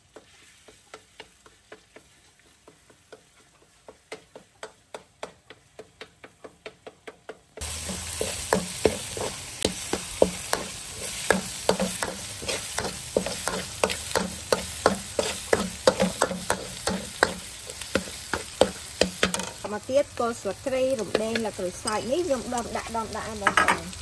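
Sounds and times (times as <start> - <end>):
food sizzling in oil in a wok: 0.0 - 5.0, 7.6 - 24.0
metal spatula scraping a pan: 7.6 - 19.7.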